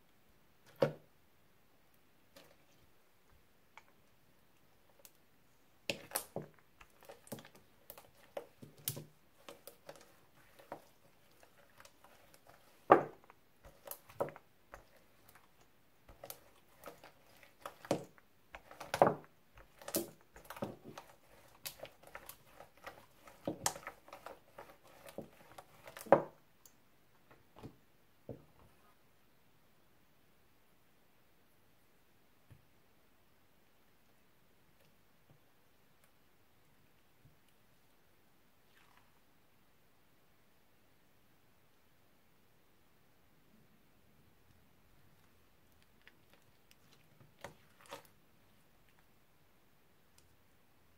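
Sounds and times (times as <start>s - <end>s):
roller on sticky slime: 5.9s - 26.4s, 46.0s - 48.2s.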